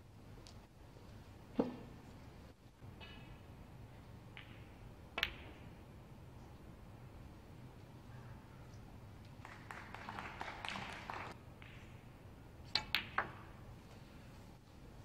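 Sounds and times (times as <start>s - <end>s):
snooker balls clicking: 4.3s - 5.6s, 9.6s - 11.9s, 12.7s - 13.5s.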